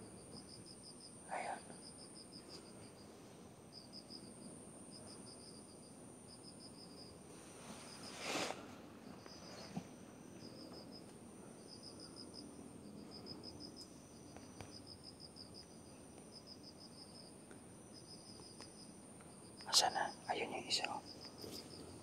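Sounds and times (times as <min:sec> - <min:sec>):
insects chirping: 0:00.0 - 0:22.0
brushing rustle: 0:07.3 - 0:08.8.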